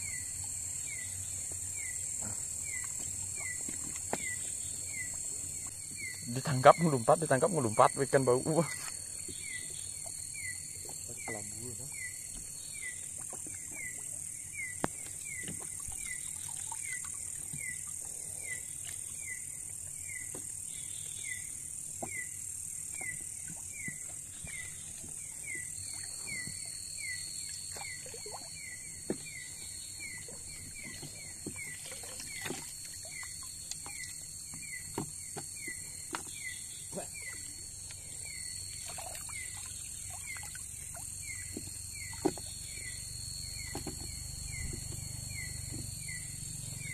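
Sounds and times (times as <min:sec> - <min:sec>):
high-pitched insect trill: 0:00.0 - 0:46.9
insect chirping call: 0:00.0 - 0:46.9
insect high hiss: 0:00.0 - 0:46.9
pole knocks and water splashes: 0:30.7 - 0:34.1, 0:38.8 - 0:42.6.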